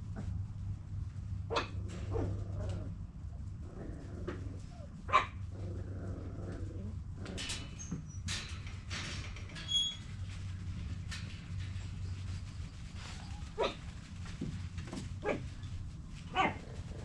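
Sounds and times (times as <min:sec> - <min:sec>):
puppy yip: 0:13.3 - 0:13.8.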